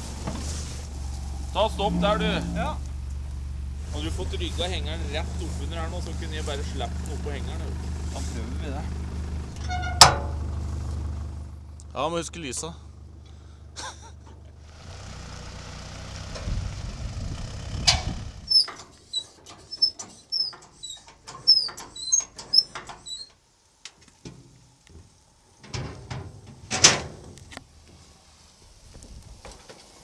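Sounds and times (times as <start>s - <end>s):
engine running low: 0.0s - 23.1s
winch squeaking and clicking: 9.5s - 10.3s, 17.8s - 23.4s
loud metal clank: 9.8s - 10.5s.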